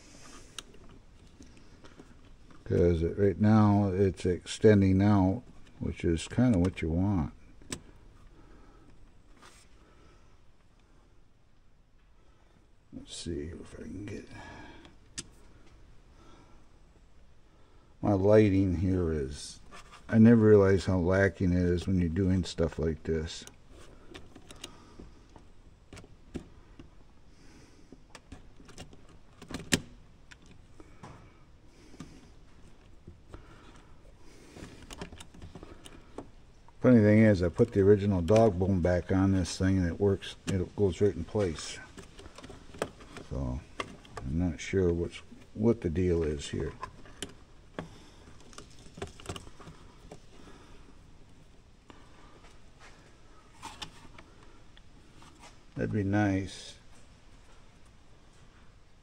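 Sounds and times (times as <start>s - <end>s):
plastic and metal parts clicking: 23.3s - 27.0s, 27.9s - 31.3s, 31.9s - 36.8s, 37.5s - 44.3s, 46.4s - 52.1s.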